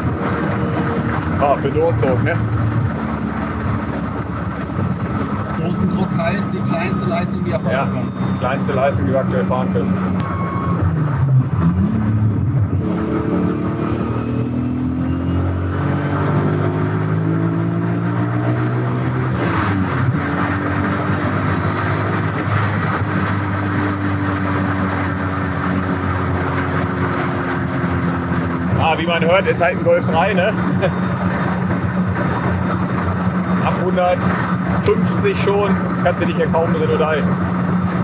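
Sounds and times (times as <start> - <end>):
car engine accelerating: 0.0 - 38.0
faint turbo whistle: 10.2 - 10.9.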